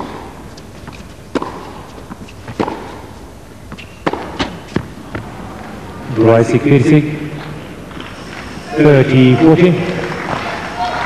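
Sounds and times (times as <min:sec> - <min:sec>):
tennis ball hit by rackets: 0:00.0 - 0:05.3
tennis ball bouncing: 0:00.0 - 0:05.4.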